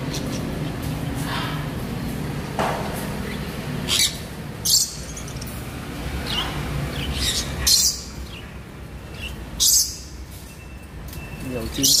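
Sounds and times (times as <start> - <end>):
parrots screeching: 3.8 - 5.4, 6.2 - 8.5, 9.1 - 10.1.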